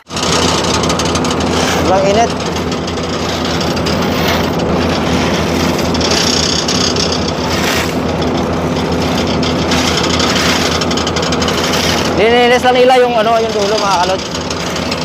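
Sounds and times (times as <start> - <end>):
diesel engine droning: 0.0 - 15.0.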